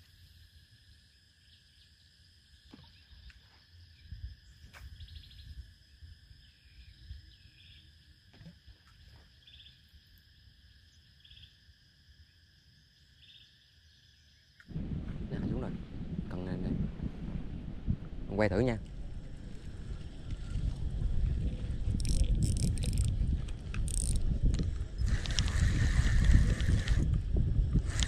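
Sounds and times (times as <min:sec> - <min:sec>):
insect buzzing and chirping: 0:00.0 - 0:14.9, 0:18.4 - 0:28.0
wind rumble on microphone: 0:04.0 - 0:07.4, 0:14.7 - 0:28.0.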